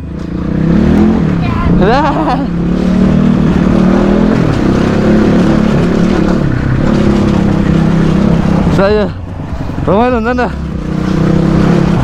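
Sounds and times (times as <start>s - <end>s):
dirt bike engine at low revs: 0.0s - 12.0s.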